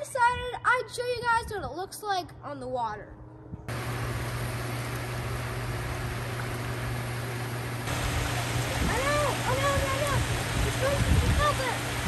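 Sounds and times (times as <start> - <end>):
low pump hum: 3.6 - 12.0
churning water: 3.7 - 12.0.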